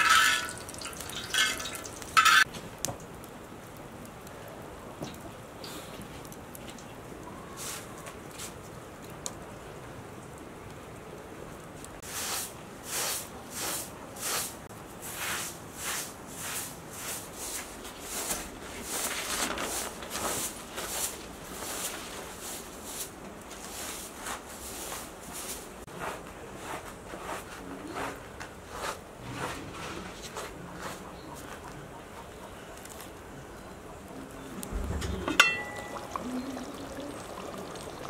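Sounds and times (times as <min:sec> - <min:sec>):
potato strips sizzling in oil: 0:00.0 - 0:02.5, 0:35.6 - 0:38.0.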